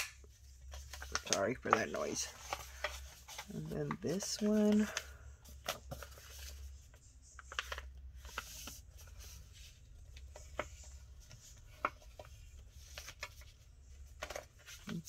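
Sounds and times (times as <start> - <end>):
paper tapping and rubbing: 0.7 - 5.0, 7.4 - 15.0.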